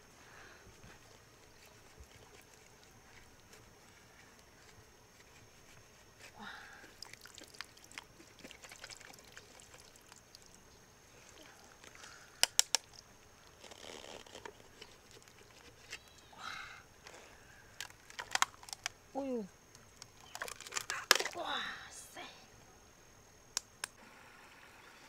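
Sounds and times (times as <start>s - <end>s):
sharp clicks: 12.4s - 13.0s.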